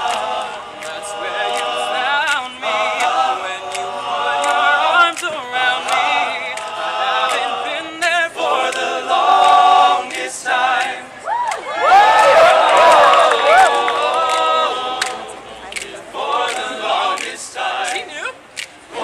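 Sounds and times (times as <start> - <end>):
sharp clicks keeping a beat: 0.0 - 11.0, 13.8 - 18.8
male voices singing in harmony: 0.0 - 11.3, 12.4 - 19.0.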